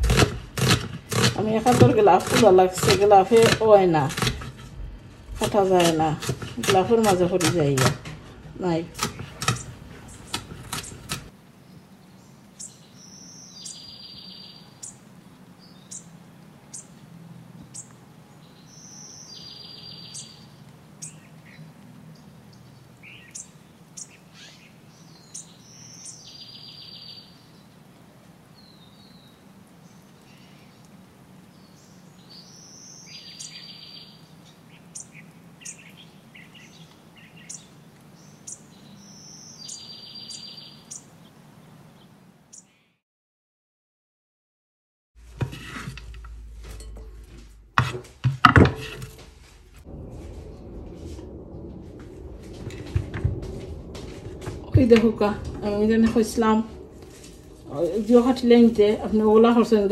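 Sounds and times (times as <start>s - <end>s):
steady low hum: 4.3s - 5.8s, 45.2s - 59.9s
birds chirping and calling: 8.6s - 11.3s, 12.6s - 17.0s, 17.6s - 27.6s, 31.6s - 43.0s.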